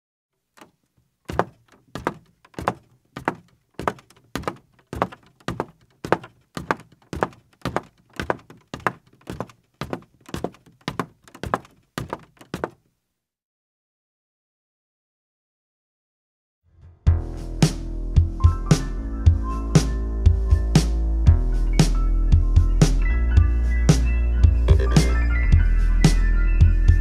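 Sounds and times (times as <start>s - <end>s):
steady thuds: 0.6s - 12.8s.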